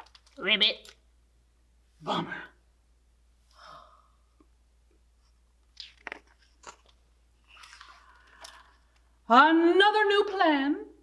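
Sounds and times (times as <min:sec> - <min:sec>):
paper page rustle: 0:05.8 - 0:08.4.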